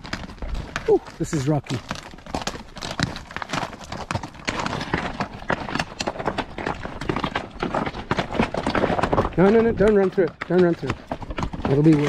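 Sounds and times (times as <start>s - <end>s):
horse hooves on rocky ground: 0.0s - 12.0s.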